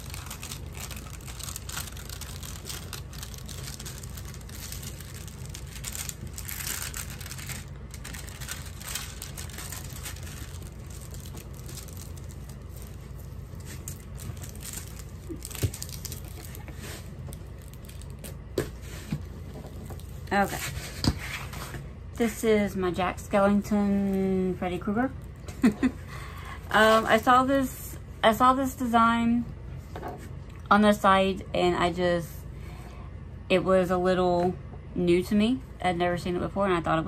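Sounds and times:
plastic film crinkling: 0:00.0 - 0:18.6, 0:19.2 - 0:20.8
steady low hum: 0:00.0 - 0:37.0.

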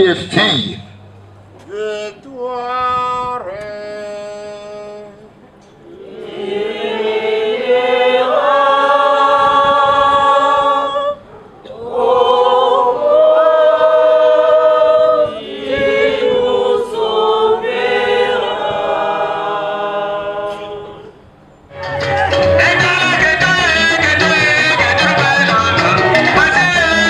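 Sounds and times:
choir singing unaccompanied: 0:05.8 - 0:27.0.

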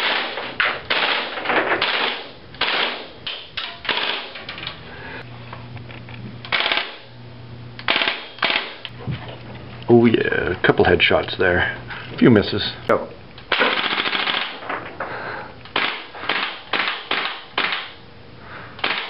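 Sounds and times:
airsoft rifle shots: 0:00.0 - 0:03.1, 0:03.8 - 0:04.4, 0:06.5 - 0:07.1, 0:07.8 - 0:08.8, 0:13.5 - 0:14.6, 0:15.7 - 0:18.0, 0:18.8 - 0:19.0.

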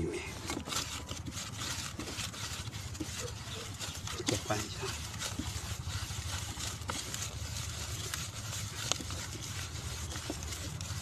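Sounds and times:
gritty rustling of bait: 0:00.0 - 0:11.0.

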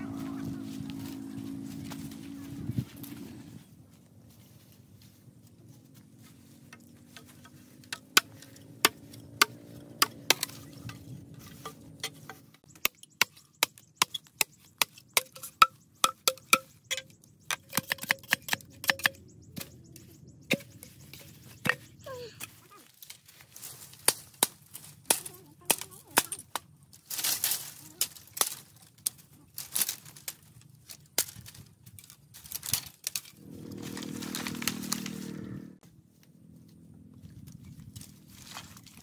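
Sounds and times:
machete chopping bamboo: 0:07.2 - 0:19.7, 0:23.9 - 0:30.4.

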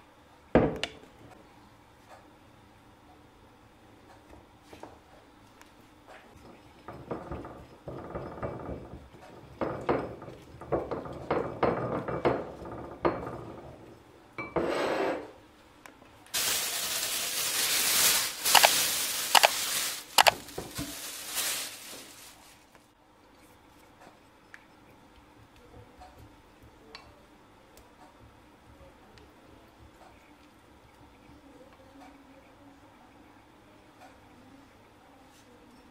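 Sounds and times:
even hiss: 0:16.4 - 0:22.4.

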